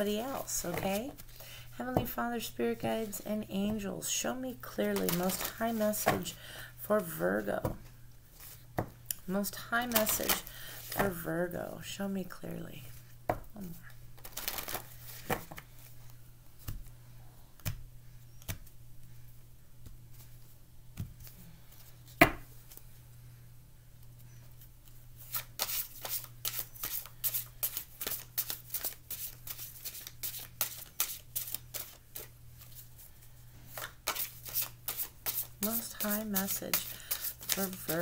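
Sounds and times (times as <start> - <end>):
low steady hum: 0.0 - 38.0
cards being shuffled: 4.8 - 6.3, 9.9 - 11.1, 14.2 - 15.9, 25.2 - 32.8, 33.7 - 38.0.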